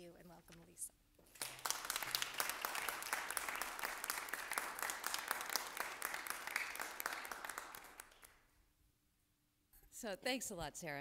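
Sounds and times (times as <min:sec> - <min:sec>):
audience applauding: 0:01.3 - 0:08.4.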